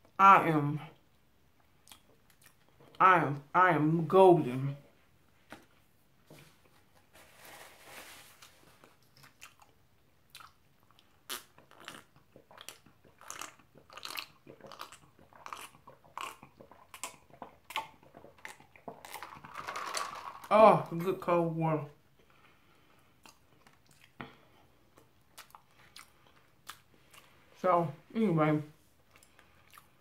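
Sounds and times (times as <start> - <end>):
soft rustle: 4.8 - 9.1
person gulping water: 9.0 - 20.5.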